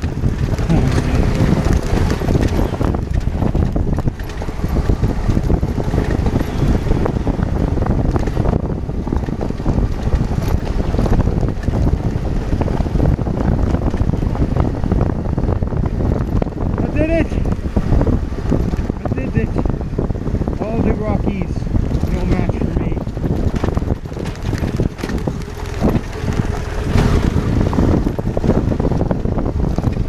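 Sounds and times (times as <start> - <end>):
motorcycle rumble: 0.0 - 30.0
wind buffeting microphone: 0.0 - 30.0
small knocks and rattles: 23.0 - 28.6.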